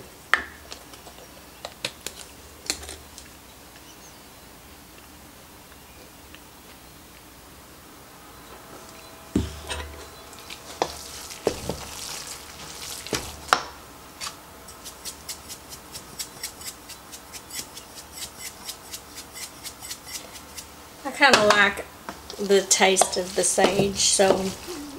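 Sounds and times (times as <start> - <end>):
hands mixing food in metal bowl: 9.4 - 21.7, 22.3 - 24.9
seasoning shaker clicking: 14.7 - 20.7.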